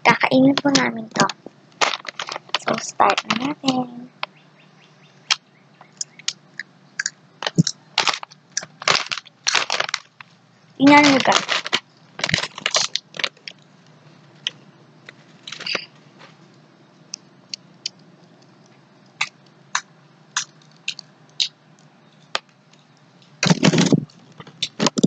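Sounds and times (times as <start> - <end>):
potato chips being chewed: 1.8 - 3.4, 5.8 - 13.7, 17.5 - 22.8.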